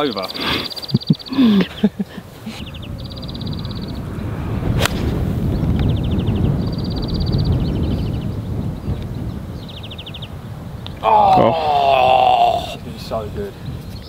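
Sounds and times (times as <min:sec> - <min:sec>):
fast high chirping trills: 0:00.0 - 0:01.9, 0:02.6 - 0:04.1
wind on microphone: 0:00.4 - 0:14.0
golf club striking ball: 0:04.8 - 0:05.2.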